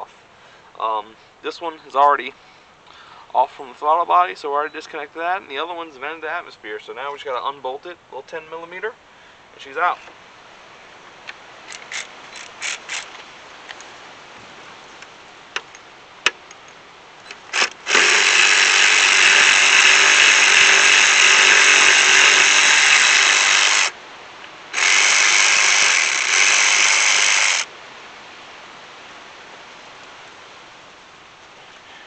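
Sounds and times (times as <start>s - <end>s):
cordless electric ratchet running: 17.3s - 24.0s, 24.7s - 27.7s.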